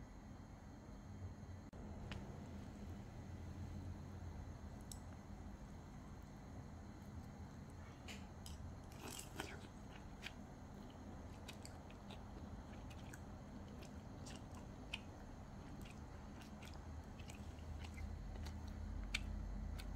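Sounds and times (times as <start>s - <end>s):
steady low hum: 0.0s - 19.9s
faint chewing: 8.0s - 19.9s.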